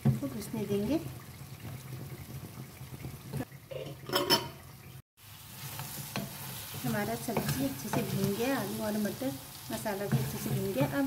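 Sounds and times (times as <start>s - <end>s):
food sizzling in a pan: 0.0s - 4.5s, 5.2s - 11.0s
spatula scraping and knocking pan: 5.6s - 11.0s.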